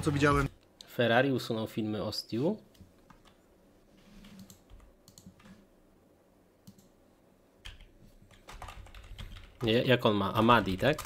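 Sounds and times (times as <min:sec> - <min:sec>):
computer mouse clicks: 0:04.2 - 0:05.6, 0:06.6 - 0:07.0.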